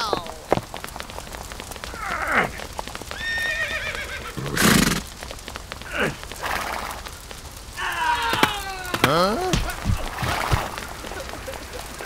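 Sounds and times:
hooves clip-clopping: 0.0s - 12.0s
horse neighing: 2.0s - 5.1s.

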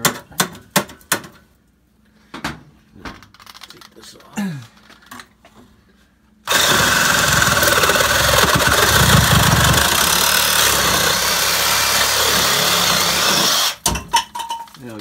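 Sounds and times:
reciprocating saw cutting metal pipe: 6.5s - 13.8s.

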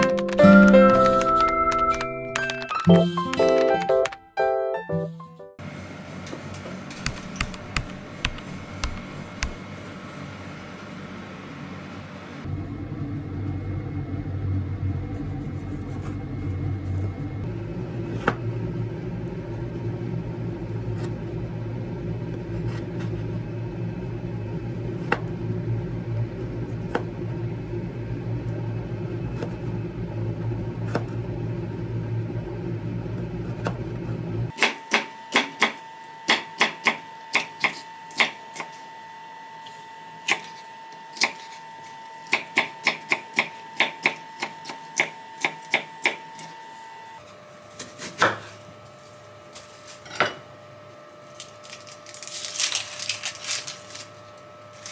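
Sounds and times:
steady low hum: 5.6s - 35.3s
knife chopping on bamboo board: 42.3s - 46.2s, 47.8s - 48.5s.

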